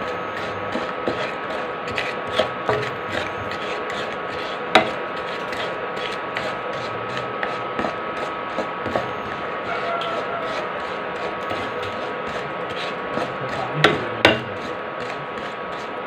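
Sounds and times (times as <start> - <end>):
induction cooktop whine: 0.0 - 16.0
spatula scraping a pan: 0.0 - 16.0
spatula knocking against pan: 4.8 - 5.0, 13.1 - 15.2.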